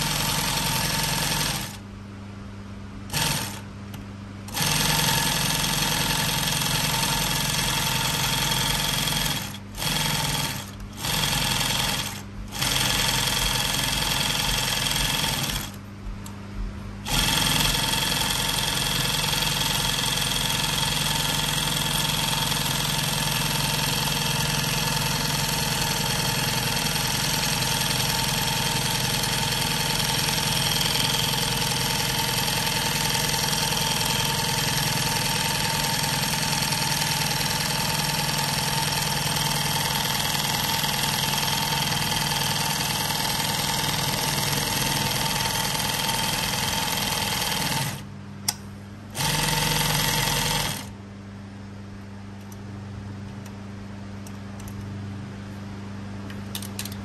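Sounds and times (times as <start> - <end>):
sewing machine stitching: 0.0 - 1.8, 3.1 - 3.6, 4.5 - 15.8, 17.0 - 48.1, 49.2 - 50.9
low motor hum: 0.0 - 20.8.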